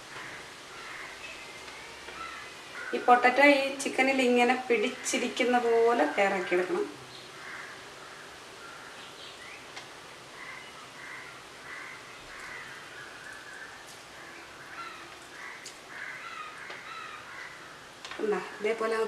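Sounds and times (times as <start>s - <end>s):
faint bird calls: 0.1s - 3.2s, 7.1s - 18.5s.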